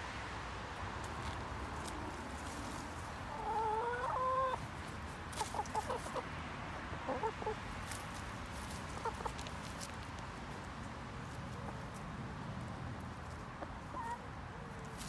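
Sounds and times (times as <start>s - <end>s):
hens clucking: 1.8s - 10.0s, 13.2s - 15.0s.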